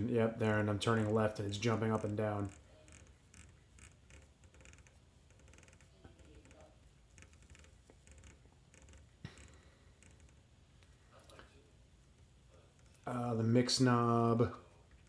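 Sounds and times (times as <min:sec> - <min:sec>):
rotary knob clicking: 0:01.8 - 0:10.4.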